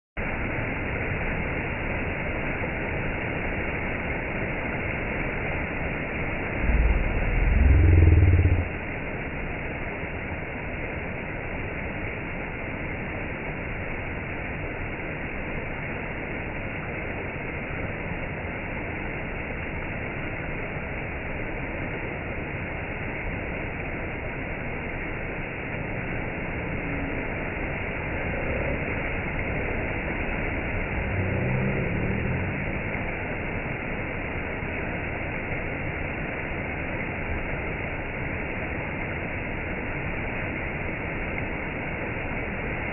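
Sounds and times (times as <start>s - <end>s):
stream cascading over rocks: 0.2s - 42.9s
loud low rumble: 6.3s - 9.3s, 25.6s - 33.4s.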